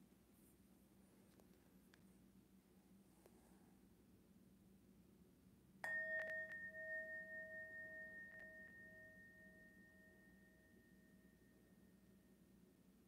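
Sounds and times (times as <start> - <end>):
meditation bell ringing: 5.8 - 12.8.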